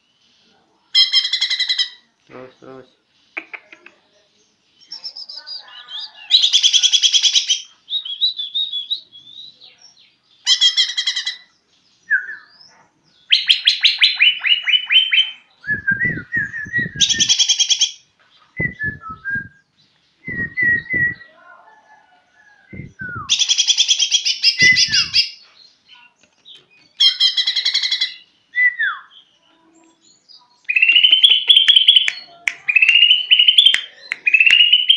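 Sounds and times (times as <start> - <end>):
bird singing: 1.0 - 34.9
soft low thumps: 15.7 - 17.0, 18.6 - 19.5, 20.2 - 21.2, 22.7 - 23.3.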